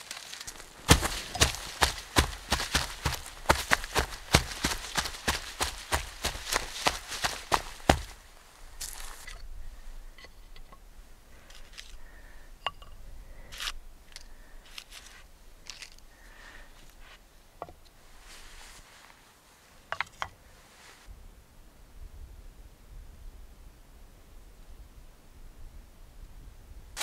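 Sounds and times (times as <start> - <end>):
rustling: 0.0 - 10.6, 18.0 - 19.8, 20.4 - 21.1.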